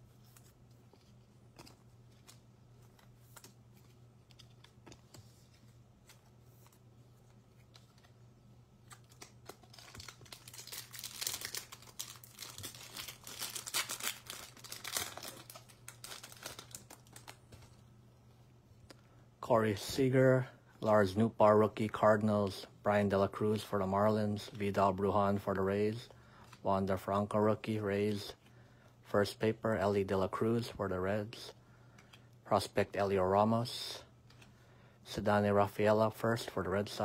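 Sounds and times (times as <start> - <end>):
foil wrapper tearing and crinkling: 9.0 - 17.4.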